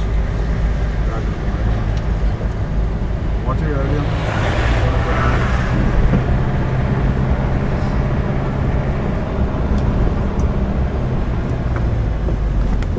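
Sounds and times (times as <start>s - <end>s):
car engine humming: 0.0s - 12.9s
road and tyre noise: 0.0s - 12.9s.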